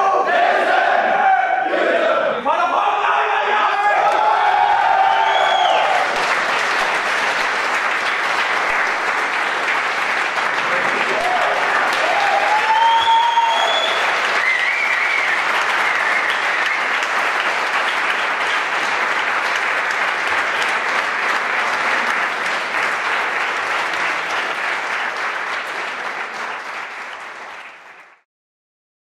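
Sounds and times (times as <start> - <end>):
people shouting: 0.0 - 6.0, 11.2 - 13.5
crowd clapping and cheering: 3.6 - 28.3.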